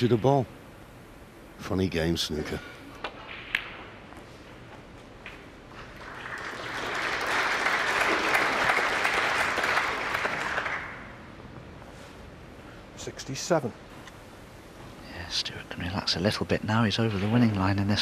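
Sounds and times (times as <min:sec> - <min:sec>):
crowd applauding: 0:05.9 - 0:11.1.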